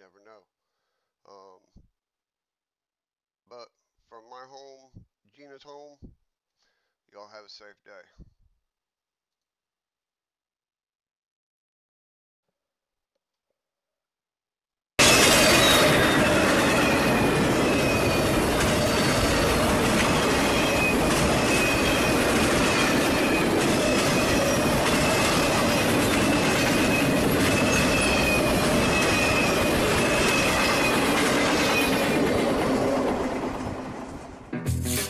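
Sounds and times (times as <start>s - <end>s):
train wheels rumbling on rails: 15.0s - 34.5s
train wheels squealing: 15.1s - 32.9s.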